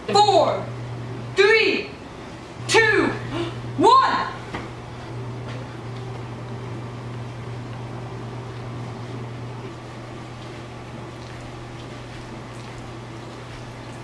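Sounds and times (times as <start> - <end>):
fan humming and hissing: 0.0 - 14.0.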